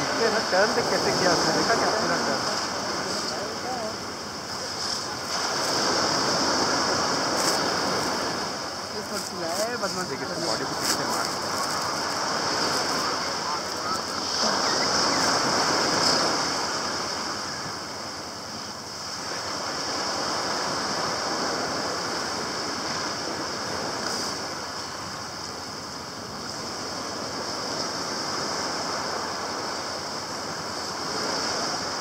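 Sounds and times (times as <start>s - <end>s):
high hiss: 0.0s - 32.0s
surf rushing on shore: 0.0s - 32.0s.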